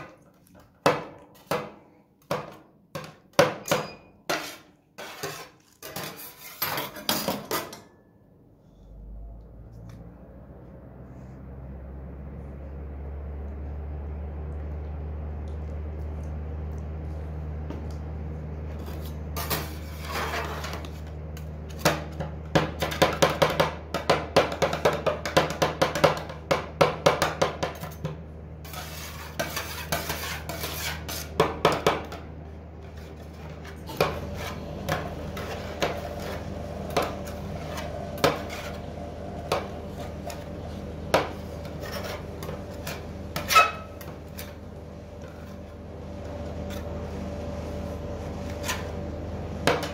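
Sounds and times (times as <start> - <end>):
metal scrapers on steel plate: 3.6 - 8.0, 18.7 - 23.4, 27.7 - 31.6, 32.8 - 44.6, 48.5 - 49.0
steady low hum: 8.2 - 49.9.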